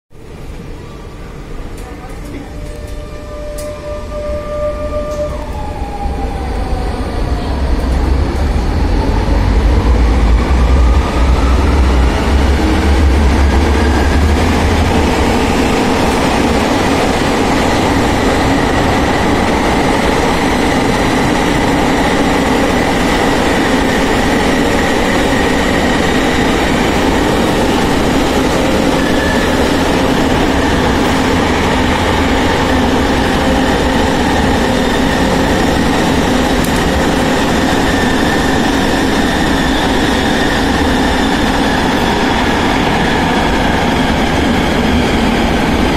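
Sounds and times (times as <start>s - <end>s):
tram traction drive whine: 0.2s - 45.9s.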